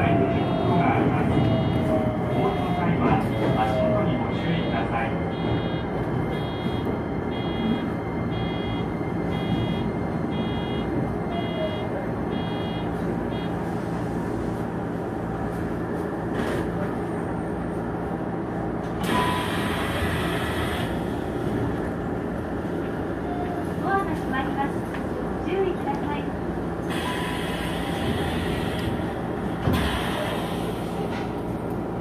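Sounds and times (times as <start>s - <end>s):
train motors and wheels rumbling: 0.0s - 32.0s
repeating warning chime: 5.3s - 13.5s.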